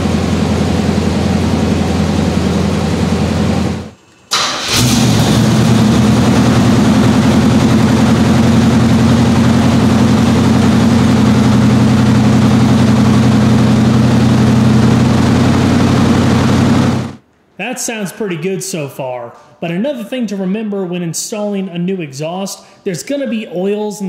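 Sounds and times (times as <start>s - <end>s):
car engine idling: 0.0s - 17.2s.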